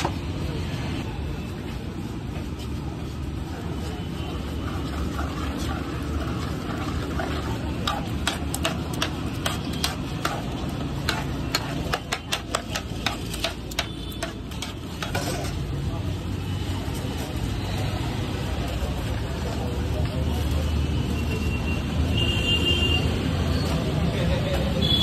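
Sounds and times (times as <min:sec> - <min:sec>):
metal spoon stirring wet food: 0:03.3 - 0:16.4.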